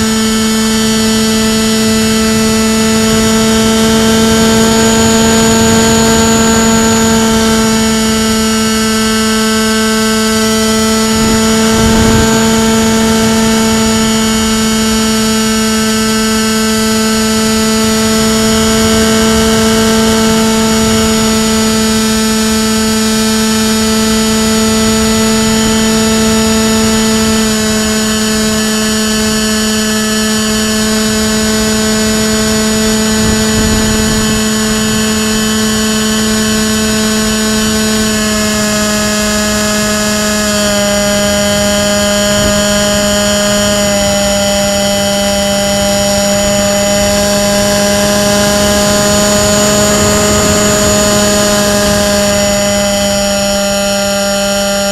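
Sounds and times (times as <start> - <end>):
electric motor propeller drone: 0.0 - 54.9
rushing air: 11.0 - 14.3.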